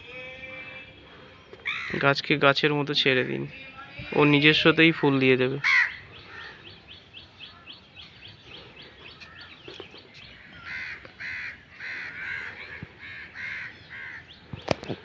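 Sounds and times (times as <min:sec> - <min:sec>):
crow cawing: 0:01.6 - 0:02.1, 0:05.6 - 0:07.8, 0:10.4 - 0:14.4.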